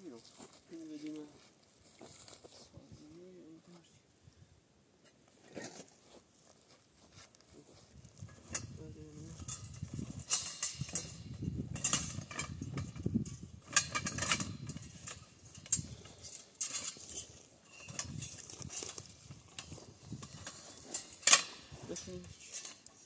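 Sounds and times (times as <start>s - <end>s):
metal tent poles clinking: 8.1s - 23.0s.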